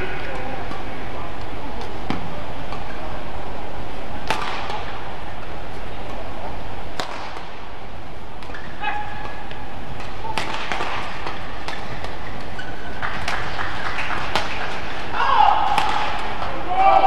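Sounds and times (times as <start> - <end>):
rackets striking shuttlecock: 0.0 - 3.0, 4.2 - 6.2, 6.9 - 7.7, 8.3 - 16.6
court shoes squeaking: 8.4 - 15.1.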